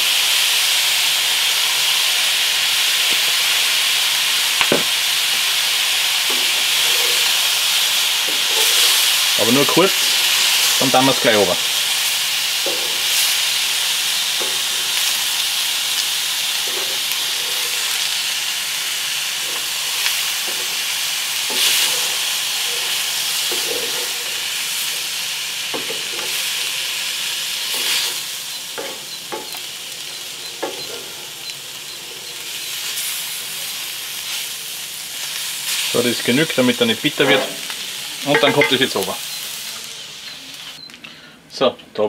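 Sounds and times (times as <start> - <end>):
meat sizzling in a skillet: 0.0 - 40.9
wooden spatula scraping: 6.3 - 11.4, 16.6 - 18.2, 21.5 - 24.4, 37.1 - 39.2.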